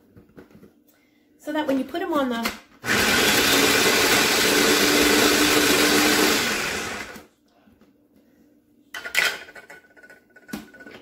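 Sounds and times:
electric food chopper whirring: 2.8s - 7.3s.

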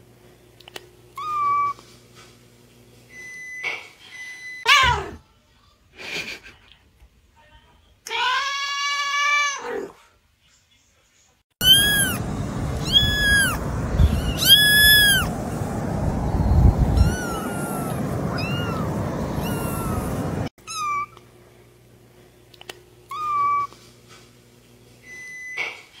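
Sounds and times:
kitten meowing: 1.2s - 1.8s, 11.6s - 15.3s, 16.4s - 21.2s, 23.1s - 23.7s
low rushing noise: 11.6s - 20.5s.

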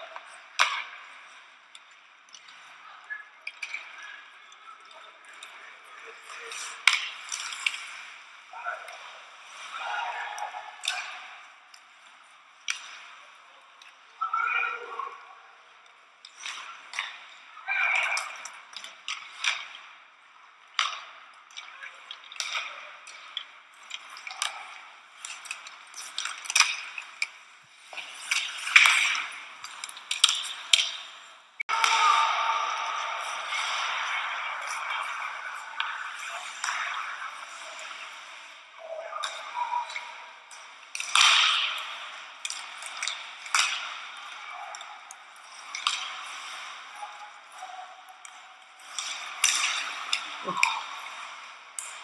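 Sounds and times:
hockey sticks and puck clacking: 0.0s - 14.6s, 15.8s - 52.0s
skates scraping on ice: 5.4s - 8.3s, 22.1s - 38.6s, 48.2s - 52.0s.

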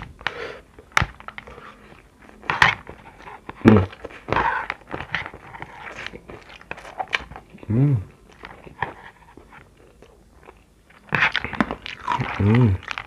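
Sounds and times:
slurping and chewing noodles: 1.4s - 13.0s.

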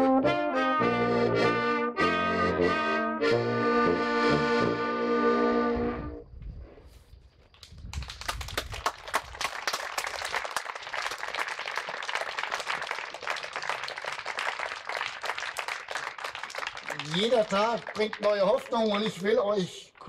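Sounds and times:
accordion and brass band chord: 0.0s - 6.2s
audience clapping: 7.5s - 20.0s.

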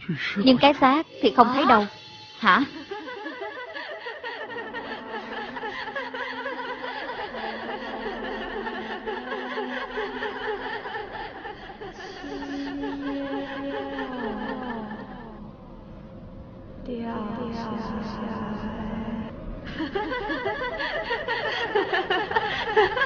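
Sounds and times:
person laughing: 2.7s - 15.4s.

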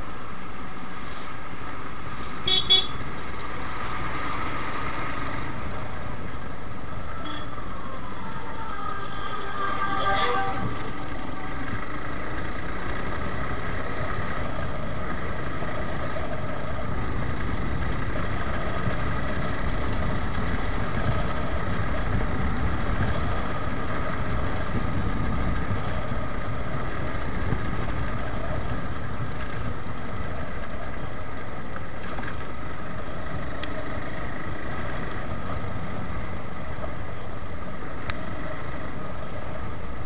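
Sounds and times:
motorcycle engine running: 1.7s - 40.0s
wind rushing over microphone: 9.0s - 30.6s.

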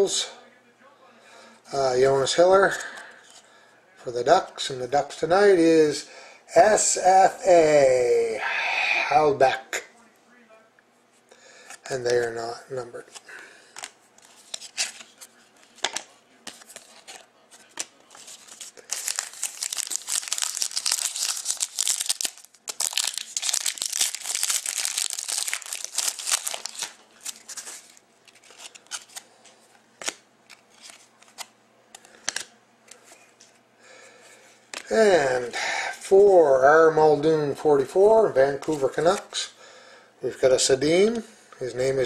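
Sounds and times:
wrapper tearing and crumpling: 18.1s - 29.2s.

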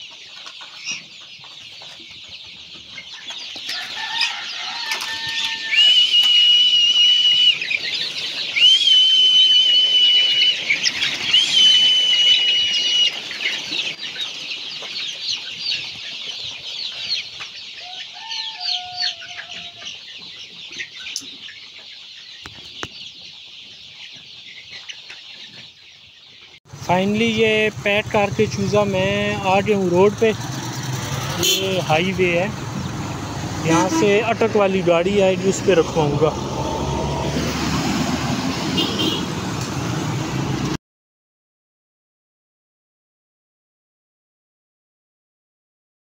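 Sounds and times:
chicks cheeping: 0.0s - 37.7s
long high calls: 5.2s - 7.7s, 8.6s - 10.7s, 11.3s - 13.2s.

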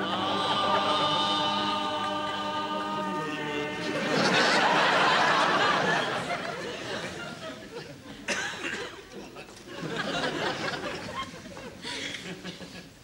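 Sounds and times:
people singing a hymn: 0.0s - 6.0s
studio audience laughter: 4.0s - 8.2s, 9.7s - 12.8s.

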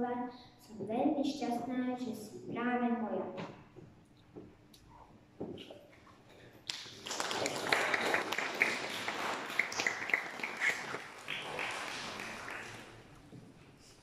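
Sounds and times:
audience applauding: 6.7s - 13.4s.

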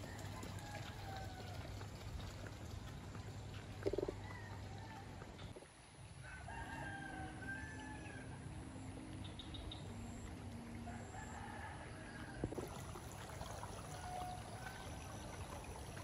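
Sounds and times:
roosters crowing: 0.0s - 1.8s, 6.2s - 8.5s, 10.8s - 12.6s
outdoor background noise: 0.0s - 16.0s.

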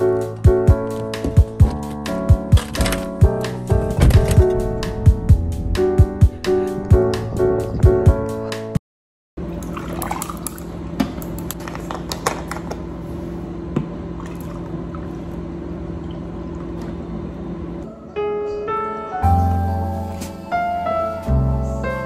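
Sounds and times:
piano music: 0.0s - 8.8s, 17.8s - 22.0s
liquid pouring into glass: 9.5s - 10.7s.

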